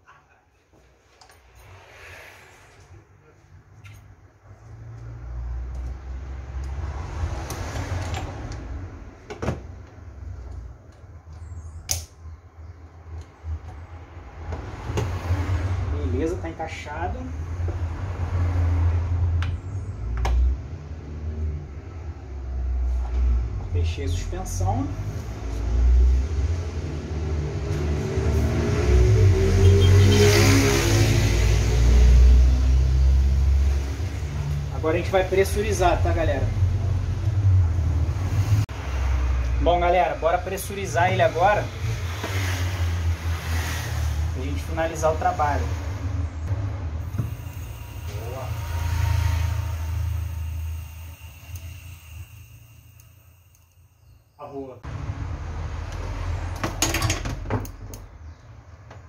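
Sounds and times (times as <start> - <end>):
steady low hum: 46.3 - 54.2.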